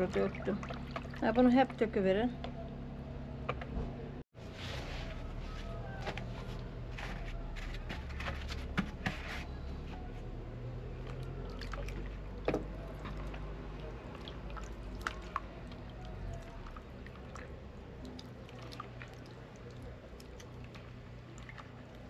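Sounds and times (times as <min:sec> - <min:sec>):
liquid sloshing and squishing: 0:00.0 - 0:01.9, 0:11.0 - 0:22.0.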